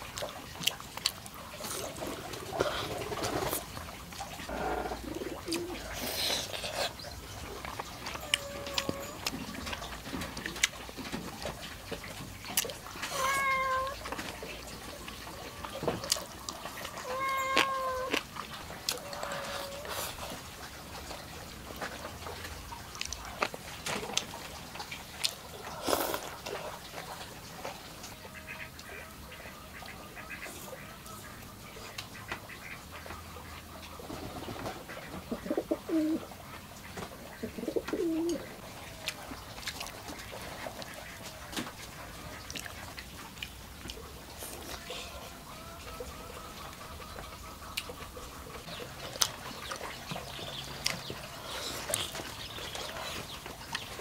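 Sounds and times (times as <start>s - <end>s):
low wavering bird calls: 4.5s - 9.3s, 16.6s - 18.2s, 18.9s - 20.1s
birds calling: 12.2s - 20.5s, 43.8s - 54.0s.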